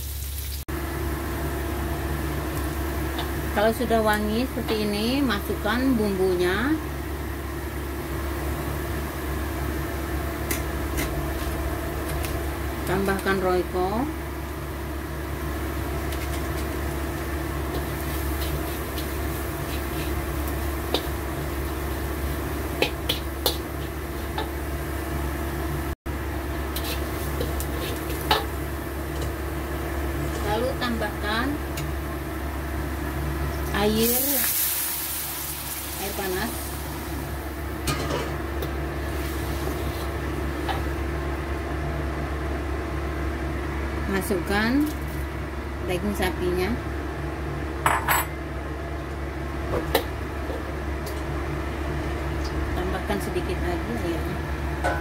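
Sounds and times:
low mechanical hum: 0.0 - 55.0
metal spatula scraping wok: 26.7 - 28.5.

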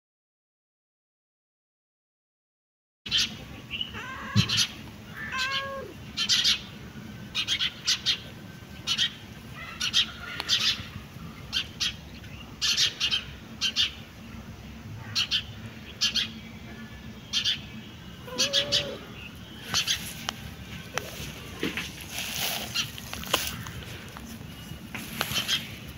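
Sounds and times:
small birds chirping: 3.1 - 25.9
cat meowing: 3.9 - 6.0, 18.2 - 19.2.

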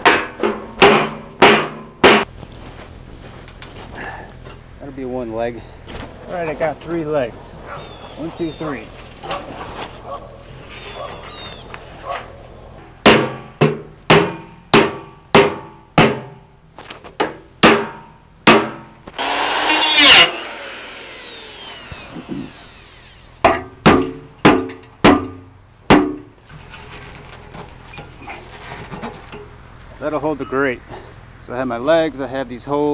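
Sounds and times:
power tool grinding metal: 19.2 - 23.4.

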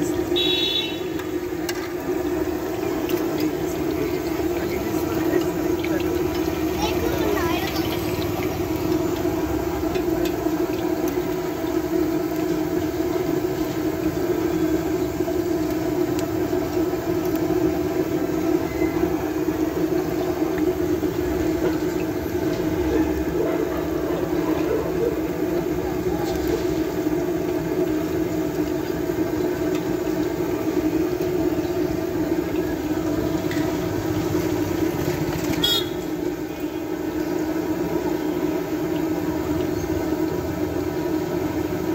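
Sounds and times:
meat sizzling in hot oil: 0.0 - 41.9
steady droning hum: 0.0 - 41.9
faint voices: 1.4 - 11.0.

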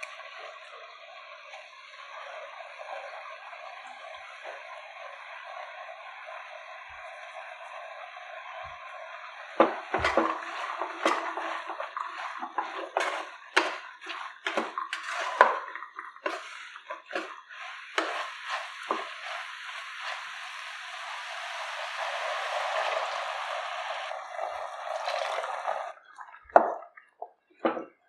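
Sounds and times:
steady sizzle: 0.0 - 26.0
wooden spatula stirring in pot: 9.6 - 23.0
water poured into pot: 9.6 - 26.9.

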